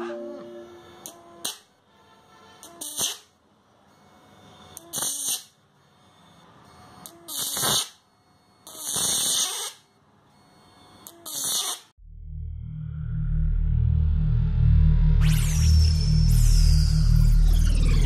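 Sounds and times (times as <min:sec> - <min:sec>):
crackling electric arcing: 0:01.0 - 0:01.7, 0:02.6 - 0:03.3, 0:04.7 - 0:05.6, 0:07.0 - 0:08.0, 0:08.6 - 0:09.8, 0:11.0 - 0:11.9.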